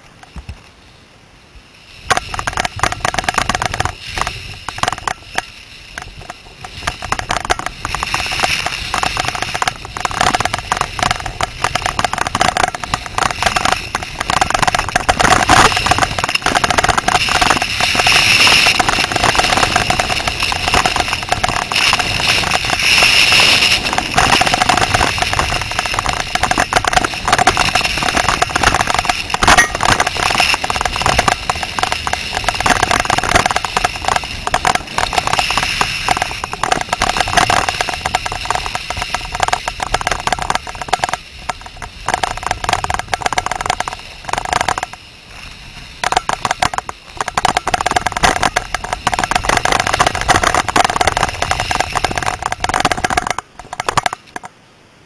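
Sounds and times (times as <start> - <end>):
steady high whine: 0.0 - 55.0
wind buffeting microphone: 1.4 - 54.6
snowblades scraping over snow: 1.7 - 54.1.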